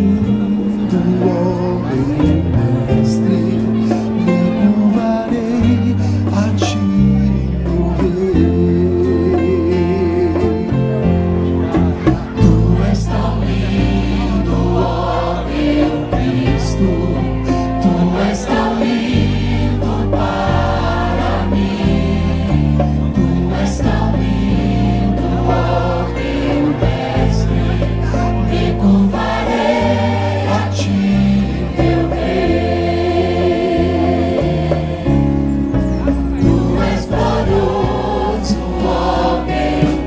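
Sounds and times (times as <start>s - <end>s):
drum and cymbal hits: 10.3s - 40.0s
choir singing: 11.7s - 40.0s.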